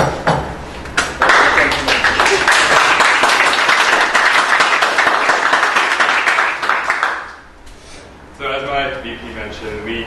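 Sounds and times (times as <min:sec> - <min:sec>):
crowd applauding: 0:01.0 - 0:07.4.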